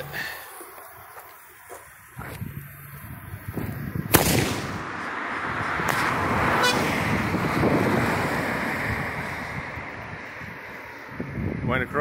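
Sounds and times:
wind on microphone: 0:01.9 - 0:12.0
firework tube bang: 0:04.1 - 0:04.9.

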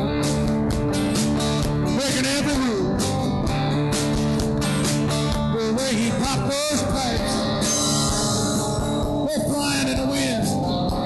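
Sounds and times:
live rock band playing: 0:00.0 - 0:11.0
lead melody bending in pitch: 0:07.2 - 0:11.0.

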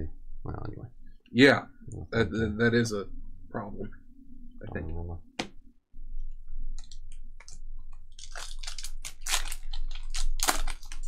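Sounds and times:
foil wrapper crinkling and tearing: 0:08.1 - 0:11.0.

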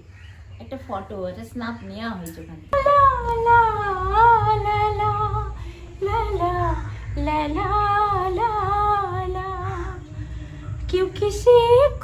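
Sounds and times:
woman singing unaccompanied: 0:02.4 - 0:12.0
short breaths: 0:10.1 - 0:10.9.

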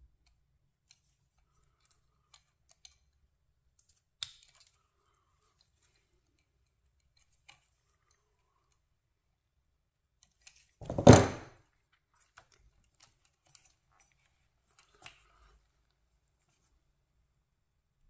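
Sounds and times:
loud thump: 0:10.8 - 0:11.5.

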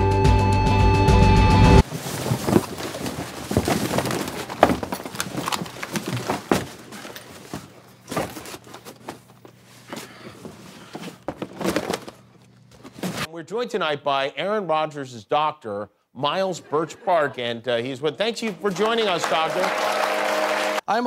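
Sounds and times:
cardboard boxes crashing and tearing: 0:01.8 - 0:13.3.

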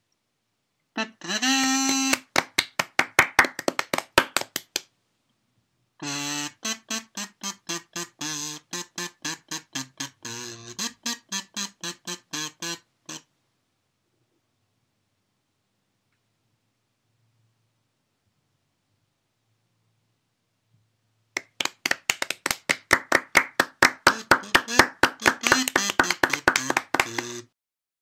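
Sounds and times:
quick staccato keyboard notes: 0:22.2 - 0:27.5.

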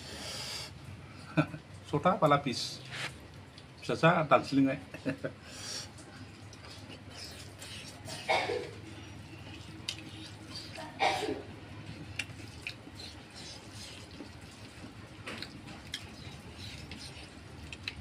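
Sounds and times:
person chewing: 0:05.5 - 0:18.0.

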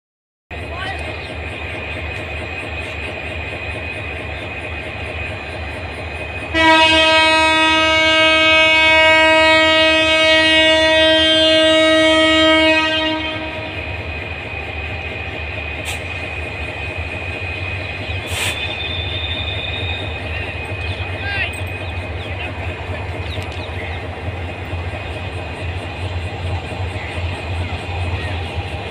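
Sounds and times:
diesel engine rumbling: 0:00.5 - 0:28.9
locomotive horn blast: 0:06.5 - 0:14.0.

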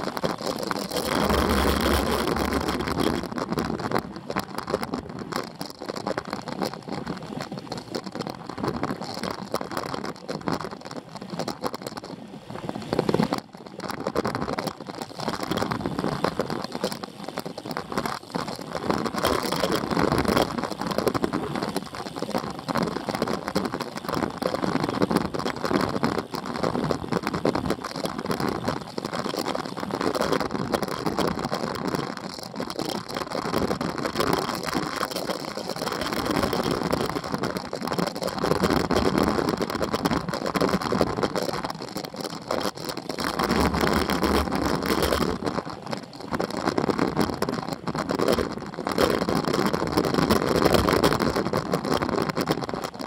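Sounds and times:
wind rushing over microphone: 0:00.0 - 0:09.6
tyre noise on rough asphalt: 0:00.0 - 0:12.1.

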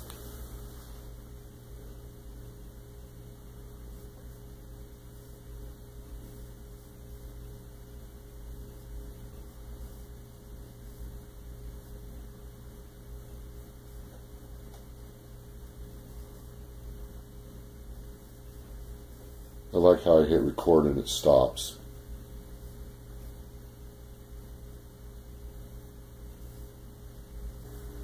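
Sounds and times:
low electrical hum: 0:00.0 - 0:28.0.

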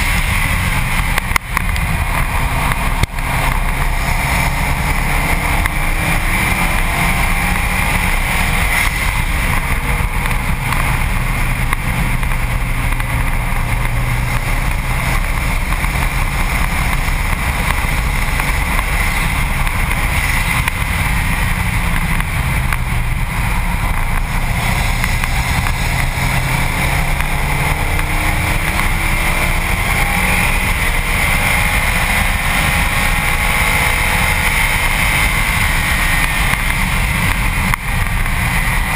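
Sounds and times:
car engine revving: 0:00.0 - 0:38.9
wind and road noise: 0:00.0 - 0:38.9.

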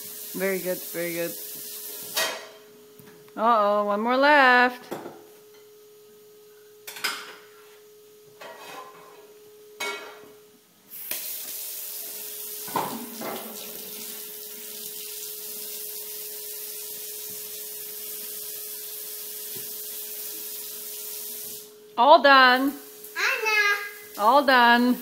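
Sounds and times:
water running into steel sink: 0:11.1 - 0:21.7.

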